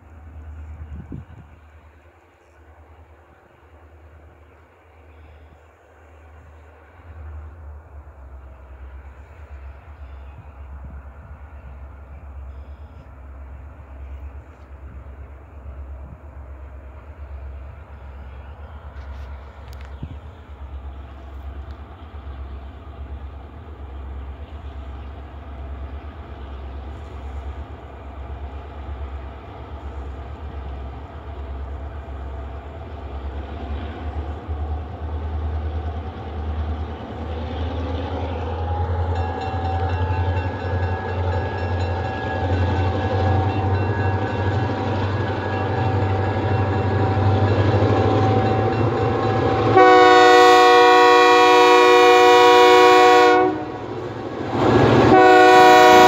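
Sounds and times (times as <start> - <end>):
diesel locomotive engine rumble: 0.0 - 56.0
locomotive air horn: 48.3 - 54.0, 54.9 - 56.0.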